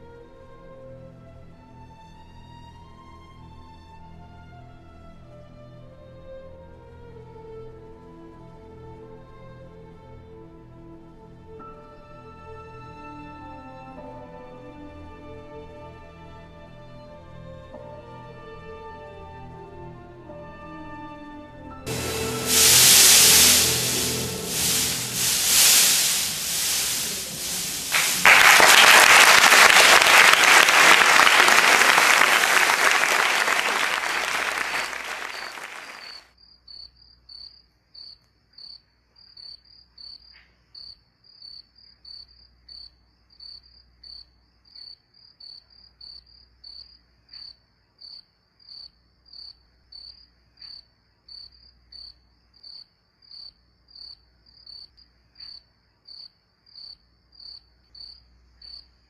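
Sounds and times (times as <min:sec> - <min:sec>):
audience applauding: 0:21.9 - 0:36.2
cricket chirping: 0:36.1 - 0:59.0.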